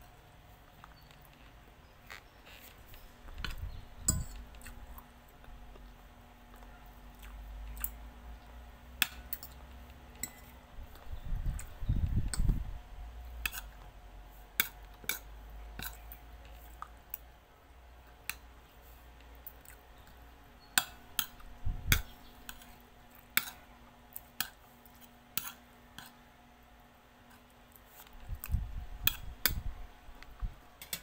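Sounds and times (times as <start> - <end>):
cutlery clinking on a plate: 10.2 - 10.6.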